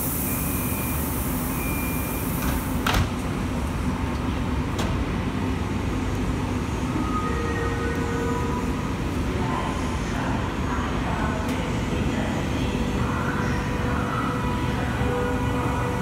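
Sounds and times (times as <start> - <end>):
faint train whine: 0.0 - 16.0
train rumbling: 2.1 - 16.0
sliding door hiss and thud: 2.3 - 3.2.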